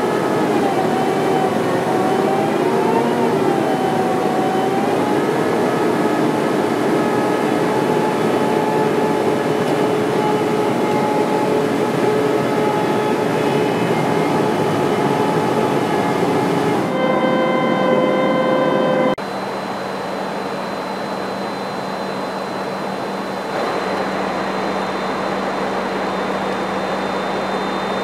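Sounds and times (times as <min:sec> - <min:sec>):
aircraft engine and airflow noise: 0:00.0 - 0:28.0
steady whining tones: 0:00.0 - 0:28.0.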